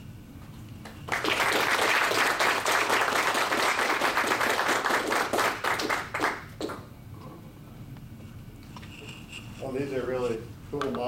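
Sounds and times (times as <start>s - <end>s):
audience applauding: 0.8s - 6.9s.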